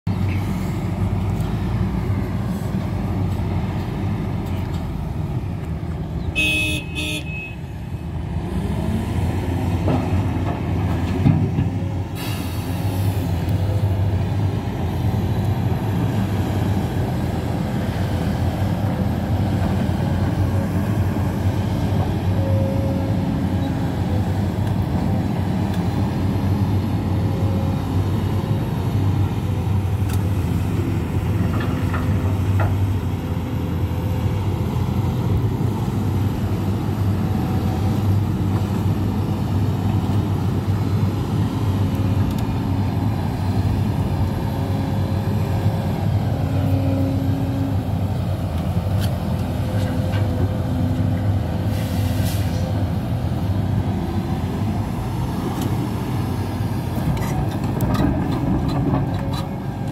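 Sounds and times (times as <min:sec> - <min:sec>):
excavator diesel engine running: 0:00.1 - 0:07.1, 0:07.7 - 0:59.9
vehicle horn: 0:06.4 - 0:07.7.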